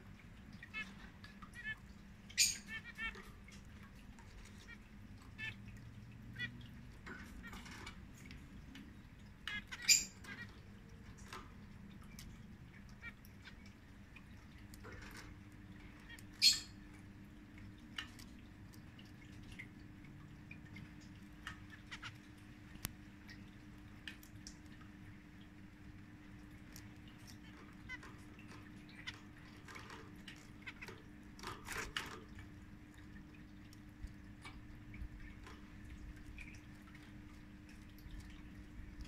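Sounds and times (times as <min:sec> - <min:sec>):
sharp bird calls: 0:01.5 - 0:03.1
finches chirping: 0:01.5 - 0:03.2, 0:09.5 - 0:10.5, 0:16.0 - 0:16.8.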